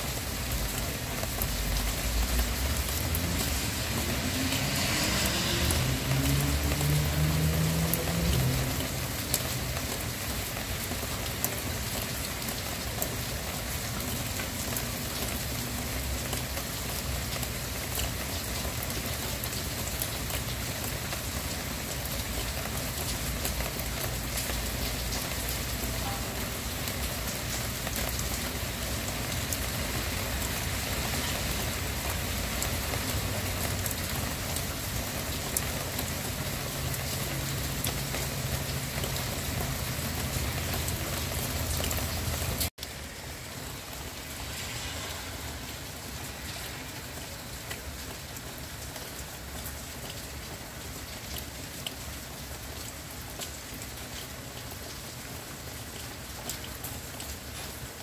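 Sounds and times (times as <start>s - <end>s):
rain on hard surface: 0.0s - 58.0s
motor vehicle passing: 2.3s - 9.9s, 43.5s - 48.1s.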